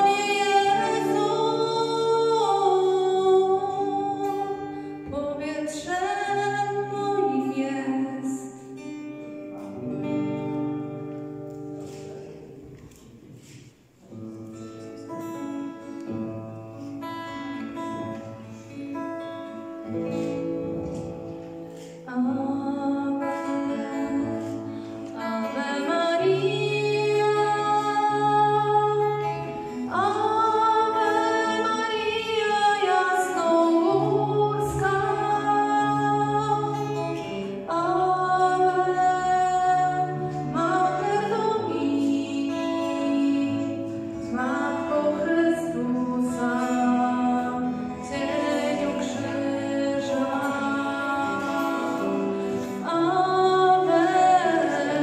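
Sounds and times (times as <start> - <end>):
woman singing into a microphone: 0.0 - 8.9, 21.8 - 55.0
acoustic guitar: 0.0 - 55.0.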